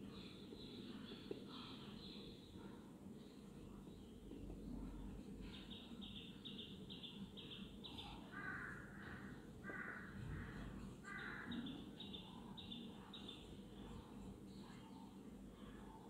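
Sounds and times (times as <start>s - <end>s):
crow cawing faintly: 8.0s - 12.5s.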